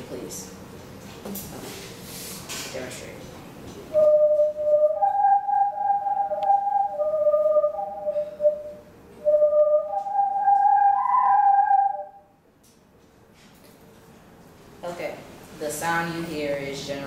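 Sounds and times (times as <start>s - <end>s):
whirly tube whistling: 3.9s - 12.3s.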